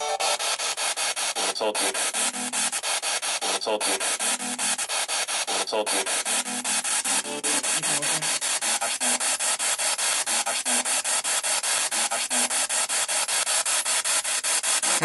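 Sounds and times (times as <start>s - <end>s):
stuttering radio static: 0.2s - 9.4s, 14.8s - 15.0s
radio voice fragments: 1.4s - 2.5s, 3.4s - 4.8s, 5.5s - 6.4s, 7.1s - 8.4s.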